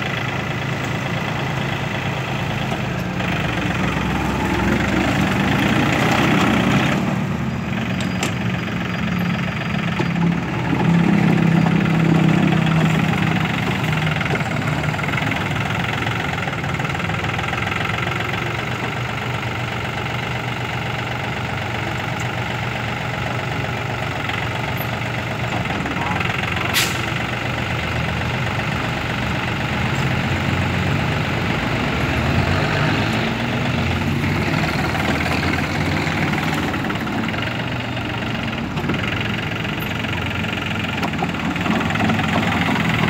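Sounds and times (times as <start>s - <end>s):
tractor diesel engine under load: 0.0s - 43.0s
rotary tiller churning soil: 34.0s - 43.0s.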